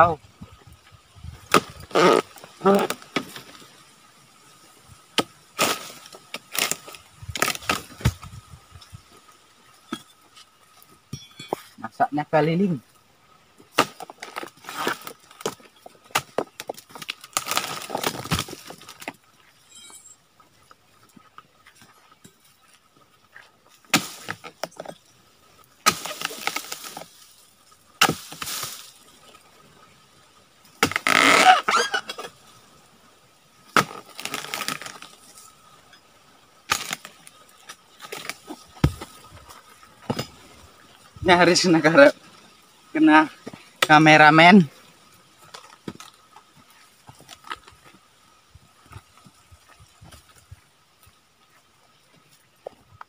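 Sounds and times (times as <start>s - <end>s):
chisel chopping palm fronds: 1.5s - 3.5s, 5.2s - 8.3s, 13.7s - 19.0s, 23.9s - 24.9s, 25.8s - 27.1s, 28.0s - 28.9s, 30.8s - 32.2s, 33.7s - 35.2s, 36.7s - 37.2s, 38.0s - 39.2s.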